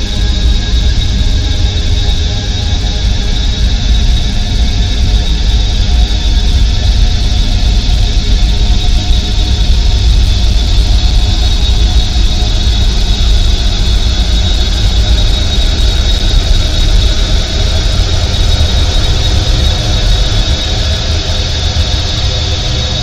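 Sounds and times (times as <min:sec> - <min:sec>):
ambient noise drone: 0:00.0 - 0:23.0
steady high whine: 0:00.0 - 0:23.0.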